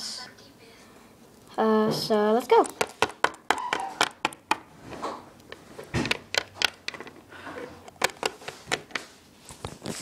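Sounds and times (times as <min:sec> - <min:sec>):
plastic toy figurines handled: 0:02.5 - 0:10.0.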